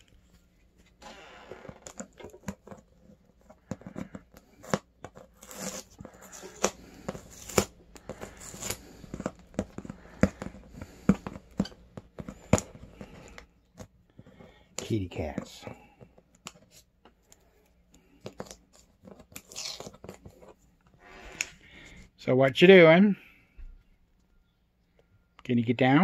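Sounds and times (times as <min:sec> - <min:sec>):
plastic wrap crinkling and tearing: 0:01.1 - 0:10.6, 0:18.3 - 0:20.3.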